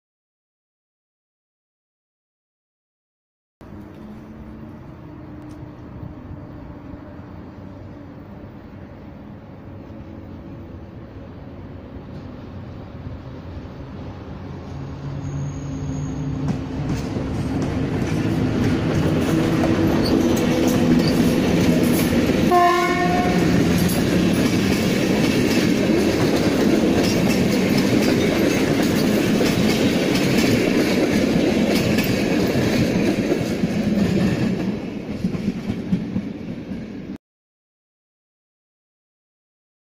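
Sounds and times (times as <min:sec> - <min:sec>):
train rumble and wheel clatter: 0:03.6 - 0:37.2
train horn blast: 0:22.5 - 0:23.8.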